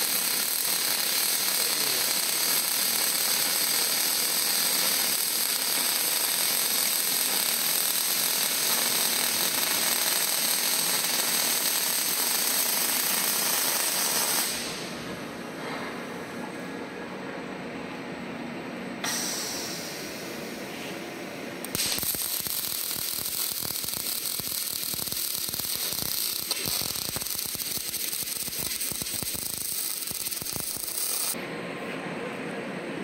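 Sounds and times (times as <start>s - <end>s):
welding arc hissing with spatter: 0.0s - 15.0s, 21.6s - 31.4s.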